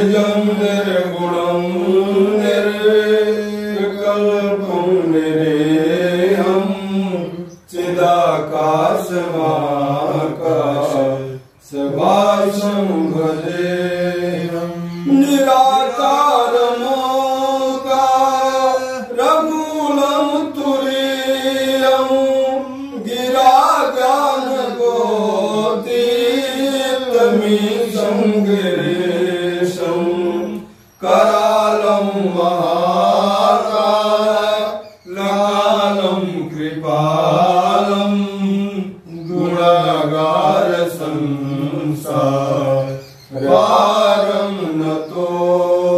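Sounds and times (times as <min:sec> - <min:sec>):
men chanting long held notes: 0:00.0 - 0:45.9.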